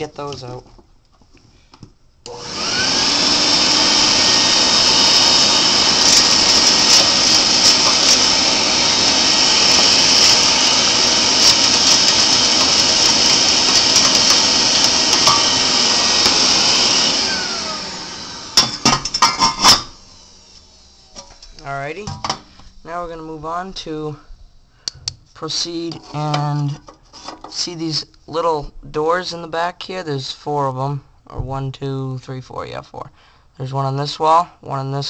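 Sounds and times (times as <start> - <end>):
vacuum cleaner running: 2.3 - 23.6.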